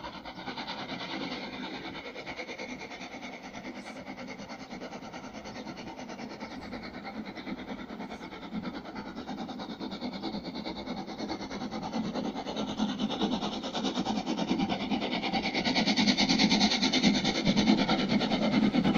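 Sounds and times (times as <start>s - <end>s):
distant steam locomotive exhaust beats: 0.0s - 18.9s.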